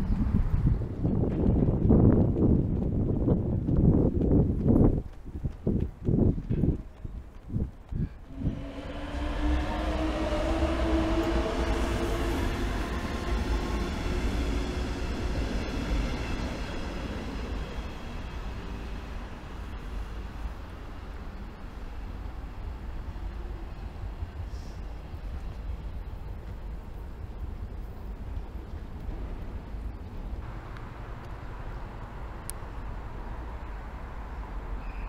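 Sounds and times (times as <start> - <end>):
train rumbling: 0.0 - 35.0
electric train drive whine: 8.2 - 24.4.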